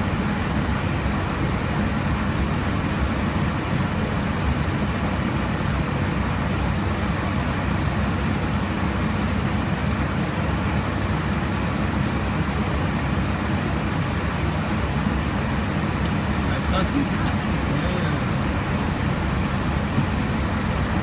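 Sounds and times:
airliner cabin rumble: 0:00.0 - 0:21.0.

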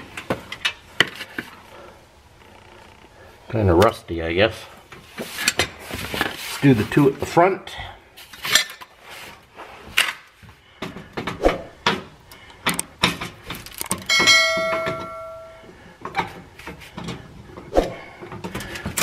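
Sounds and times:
screwdriver clicking and scraping: 0:12.3 - 0:14.2
bell-like chime: 0:14.1 - 0:15.7.

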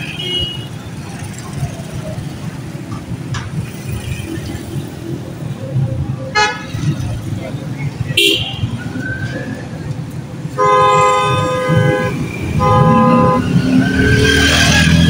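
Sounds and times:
street traffic rumble: 0:00.0 - 0:15.0
vehicle horn blaring: 0:06.4 - 0:06.8, 0:08.2 - 0:08.7, 0:10.6 - 0:13.6.

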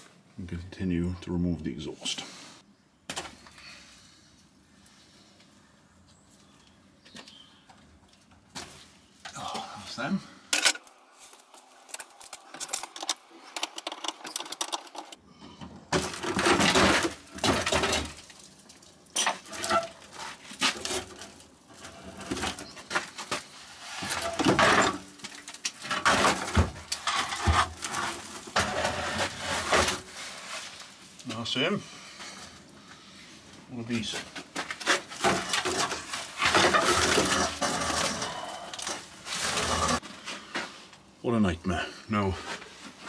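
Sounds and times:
metal exhaust scraping and clanking: 0:25.9 - 0:30.6, 0:34.9 - 0:40.0.

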